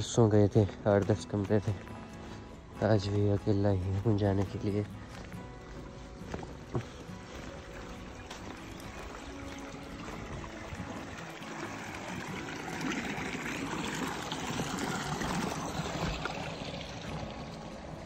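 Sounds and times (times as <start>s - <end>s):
water trickling in a channel: 6.7s - 18.0s.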